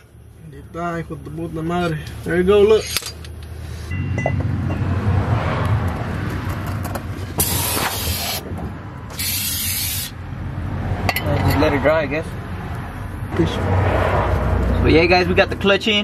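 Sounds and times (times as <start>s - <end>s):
metal parts clinking: 2.8s - 3.4s
aerosol can spraying: 7.4s - 8.4s, 9.1s - 10.2s.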